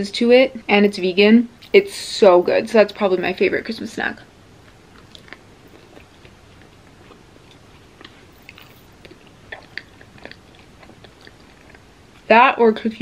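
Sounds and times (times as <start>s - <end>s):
person chewing crunchy chip: 4.6s - 12.3s
wet mouth clicks: 4.6s - 12.3s.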